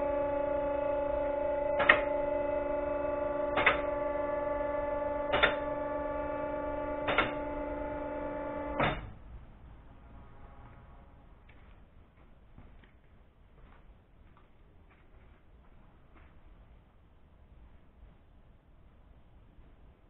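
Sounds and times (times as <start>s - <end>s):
lift pump motor humming: 0.0s - 9.2s.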